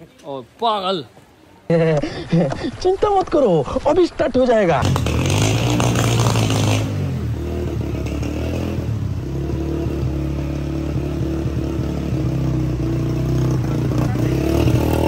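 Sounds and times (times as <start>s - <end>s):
motorcycle engine running: 4.8s - 15.0s.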